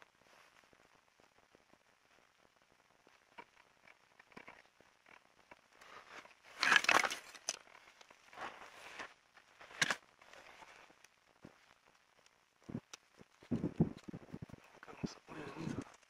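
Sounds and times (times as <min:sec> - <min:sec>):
dry plants and sticks crunching: 0:05.9 - 0:10.8.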